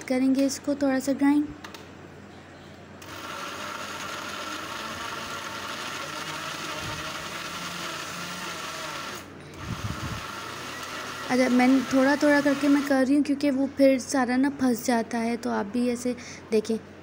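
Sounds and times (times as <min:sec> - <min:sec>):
electric food chopper motor: 0:03.0 - 0:12.9.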